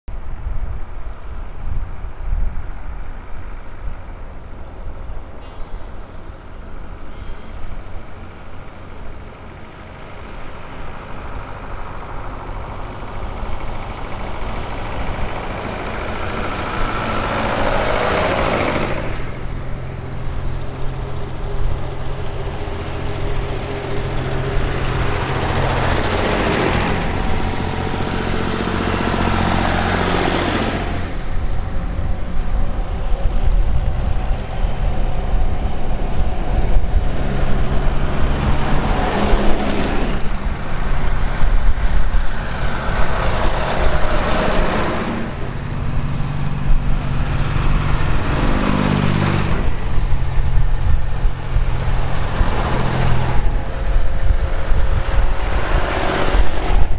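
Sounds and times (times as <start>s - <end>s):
tractor engines passing: 0.2s - 56.9s.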